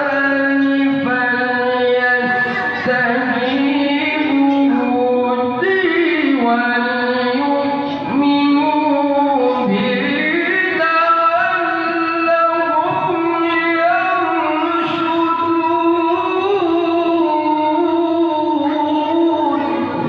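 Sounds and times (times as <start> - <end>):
man chanting over loudspeaker: 0.0 - 20.0.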